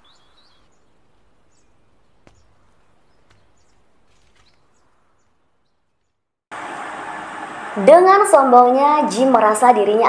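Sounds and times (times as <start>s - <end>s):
distant bird chirps: 0.0s - 6.4s
faint outdoor ambience: 0.0s - 10.0s.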